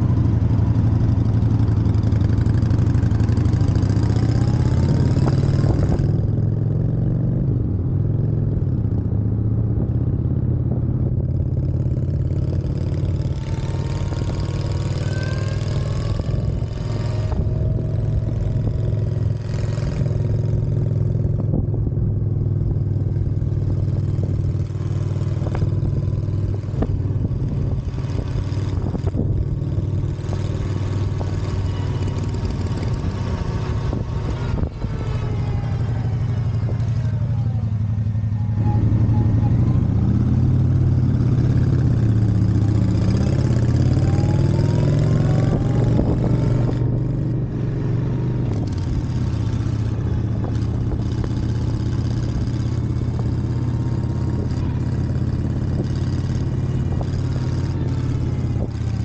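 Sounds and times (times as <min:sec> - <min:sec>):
motorcycle engine drone: 0:00.0 - 0:59.0
rising whine: 0:31.0 - 0:47.8
wind rush: 0:32.2 - 0:37.1, 0:39.7 - 0:52.2.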